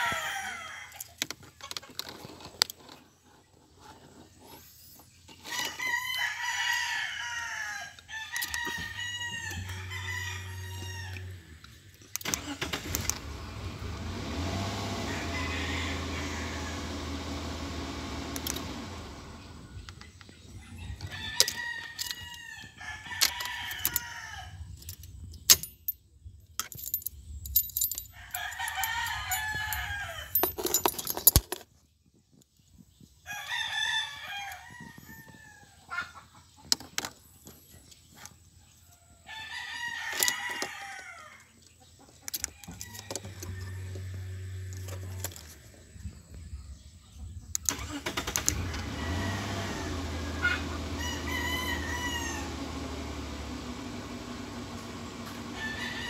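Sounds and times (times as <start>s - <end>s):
rooster crowing: 0.0s - 1.2s, 5.5s - 11.6s, 14.8s - 17.5s, 20.6s - 24.7s, 28.1s - 30.4s, 33.3s - 36.0s, 39.1s - 41.4s, 42.5s - 45.2s, 48.5s - 53.2s, 55.4s - 56.0s
car engine starting and idling: 8.4s - 20.5s, 42.7s - 46.0s, 47.5s - 56.0s.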